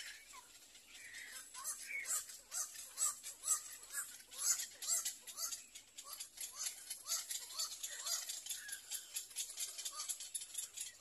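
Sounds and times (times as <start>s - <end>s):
chicks giving begging calls: 0.0s - 11.0s.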